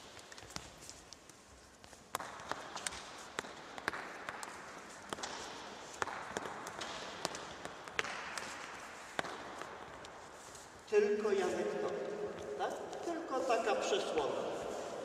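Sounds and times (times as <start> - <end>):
footsteps on court: 0.0 - 15.0.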